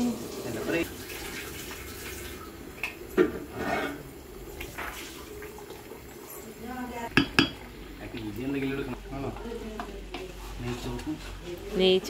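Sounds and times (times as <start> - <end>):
pots and utensils knocking: 7.1 - 7.7.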